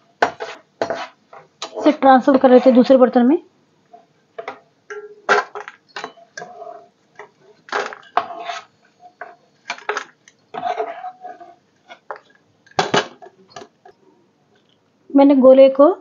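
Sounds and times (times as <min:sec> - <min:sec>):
metal spoon scraping a pan: 0:00.2 - 0:03.1, 0:04.0 - 0:13.6.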